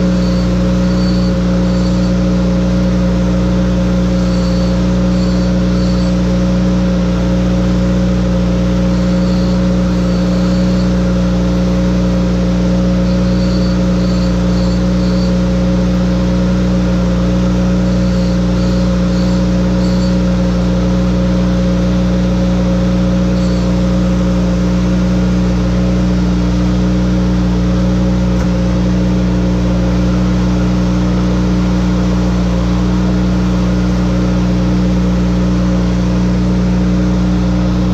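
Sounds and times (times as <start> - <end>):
chain grinder motor humming: 0.0 - 2.3, 4.0 - 6.3, 8.7 - 11.2, 12.8 - 15.5, 17.7 - 20.5, 23.3 - 23.9
grinding wheel rasping on chain: 0.0 - 2.3, 4.1 - 6.3, 8.8 - 11.0, 13.0 - 15.4, 17.9 - 20.3.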